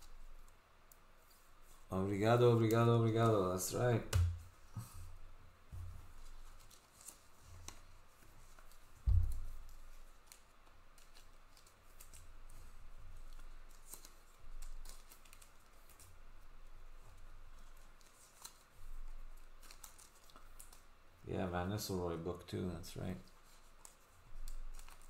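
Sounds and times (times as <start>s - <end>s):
dull thump: 9.0s - 9.5s.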